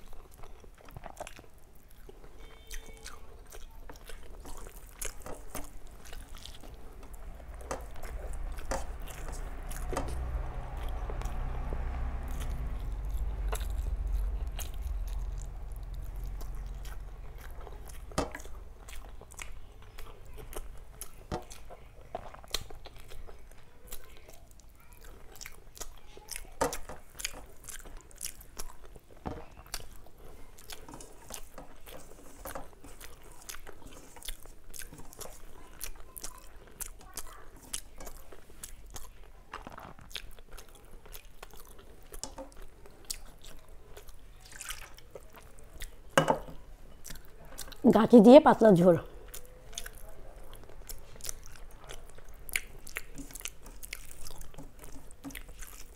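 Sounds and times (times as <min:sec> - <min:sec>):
food crunch: 0:00.0 - 0:47.8, 0:49.0 - 0:55.9
close chewing and biting: 0:00.0 - 0:48.1, 0:48.8 - 0:55.9.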